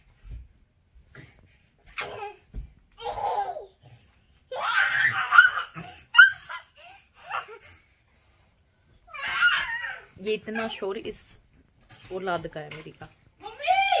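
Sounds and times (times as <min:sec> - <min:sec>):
toddler girl laughing and squealing: 0:04.5 - 0:07.5, 0:09.1 - 0:10.0.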